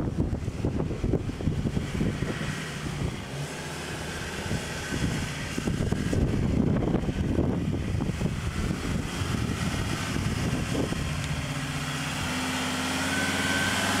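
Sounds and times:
truck engine at low revs: 0.0s - 14.0s.

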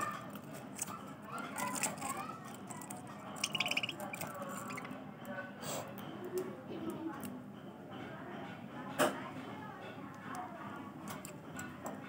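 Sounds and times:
budgerigars chattering: 3.4s - 4.9s.

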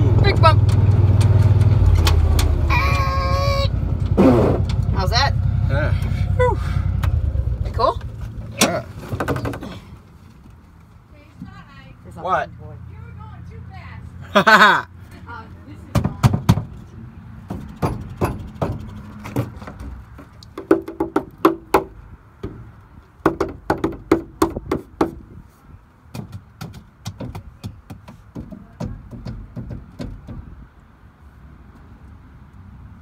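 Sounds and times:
low rumble: 0.0s - 8.6s
go-kart body rattling: 6.9s - 10.6s, 17.6s - 21.6s.

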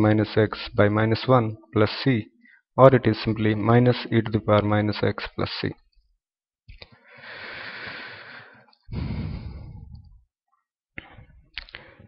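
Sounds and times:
man breathing: 6.9s - 10.2s, 11.2s - 12.0s.

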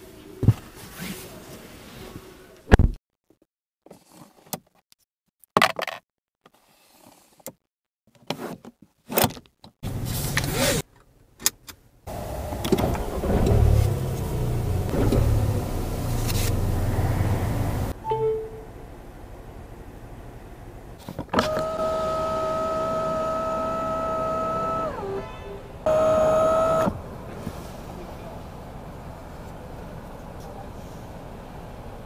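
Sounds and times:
small electric motor droning: 21.5s - 25.2s, 25.9s - 26.9s.

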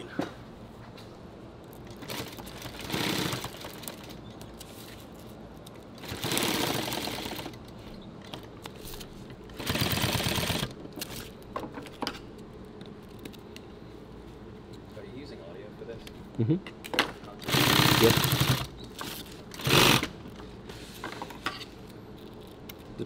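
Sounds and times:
sewing machine stitching: 2.0s - 4.1s, 17.4s - 18.7s.

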